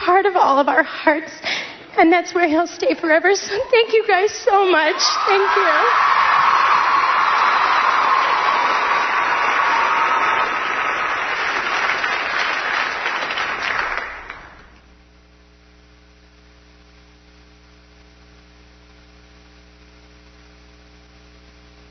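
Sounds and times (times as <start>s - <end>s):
electrical mains hum: 0.0s - 21.9s
large audience applauding: 4.9s - 14.8s.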